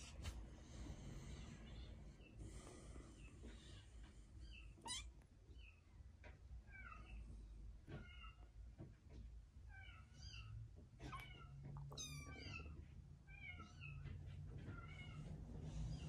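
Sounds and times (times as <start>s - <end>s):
kittens mewing: 4.8s - 5.2s.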